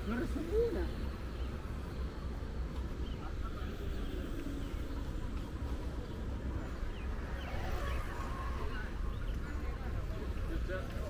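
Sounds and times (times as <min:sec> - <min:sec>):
distant voices: 0:00.0 - 0:11.0
low rumble: 0:04.2 - 0:10.4.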